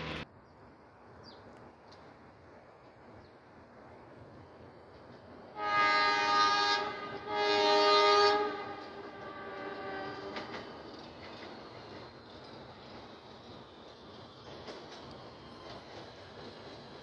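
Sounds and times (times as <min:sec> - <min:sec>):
train horn blasts: 0:05.5 - 0:10.6.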